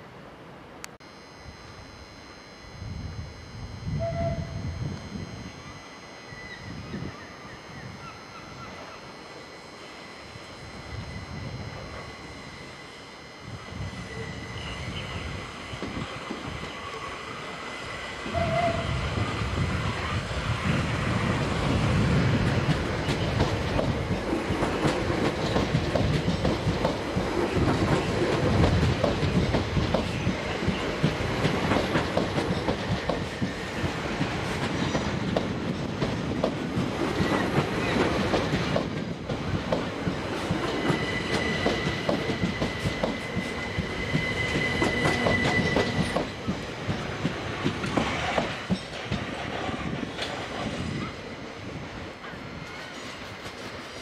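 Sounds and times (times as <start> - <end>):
electric train running past: 0.0 - 54.0
steady high squeal: 1.0 - 26.6, 40.2 - 46.7
wheels clacking over rail joints: 22.4 - 50.7.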